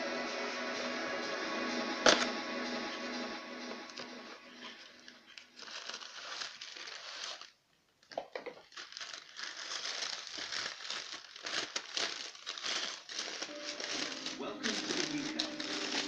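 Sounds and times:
paper wrapping crinkling: 3.9s - 16.0s.

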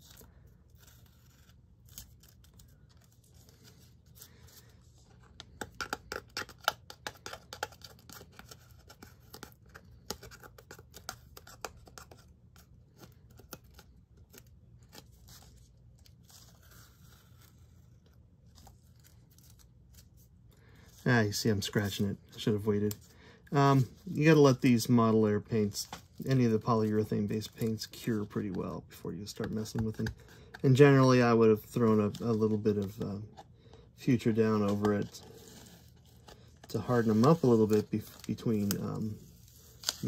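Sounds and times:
tape peeling off with crackles: 0.7s - 3.1s.

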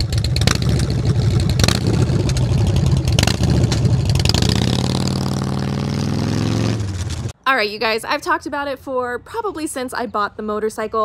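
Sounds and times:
motorcycle engine pulling away: 0.0s - 7.4s.

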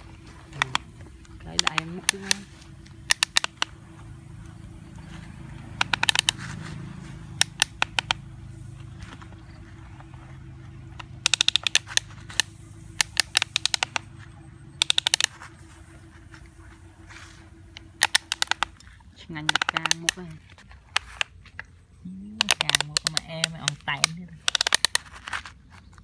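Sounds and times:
steady low hum: 0.0s - 26.0s
toy excavator joints ratcheting: 0.5s - 3.8s, 4.6s - 8.4s, 10.8s - 14.1s, 14.8s - 15.5s, 17.7s - 26.0s.

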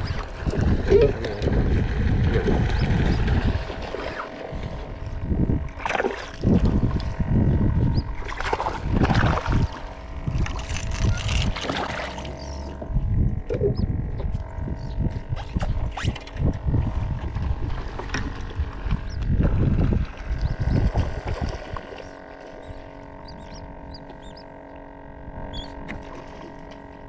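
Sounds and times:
seabirds calling: 0.0s - 1.6s, 2.6s - 4.4s, 7.7s - 8.2s, 10.7s - 16.4s, 18.9s - 19.4s, 20.2s - 21.0s, 21.7s - 26.0s
wind rumbling on microphone: 0.0s - 27.0s
microphone handling noise: 6.4s - 24.2s.

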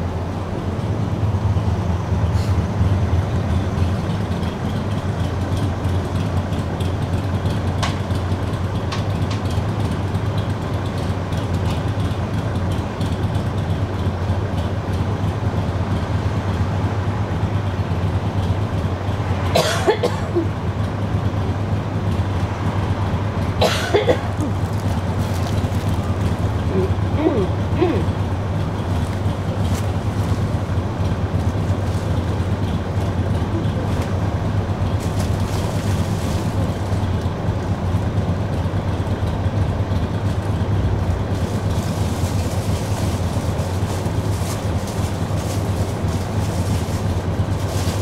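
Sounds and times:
tram wheels rumbling on rails: 0.0s - 48.0s.

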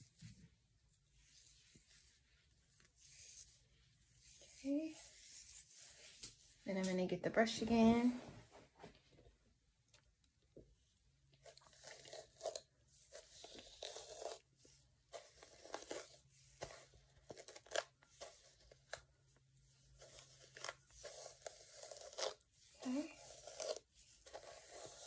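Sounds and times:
brush scratching through wet hair: 0.0s - 7.0s, 11.4s - 16.2s, 19.8s - 25.0s.

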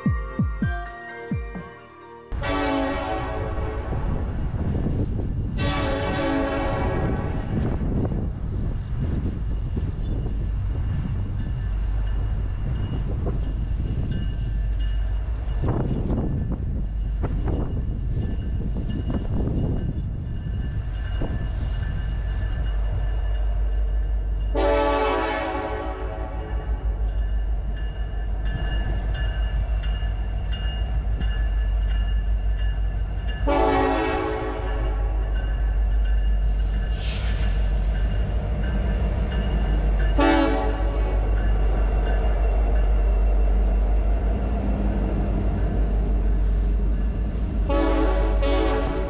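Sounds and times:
locomotive engine and rail rumble: 0.0s - 49.0s
train air horn blasts: 2.4s - 4.2s, 5.6s - 7.6s, 24.5s - 26.7s, 33.4s - 35.2s, 40.2s - 41.3s, 47.7s - 49.0s.

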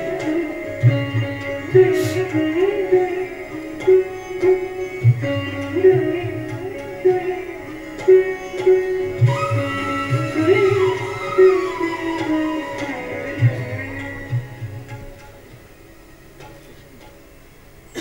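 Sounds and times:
hand drum strokes: 0.0s - 2.8s, 7.9s - 15.7s
bending instrumental melody: 0.0s - 18.0s.

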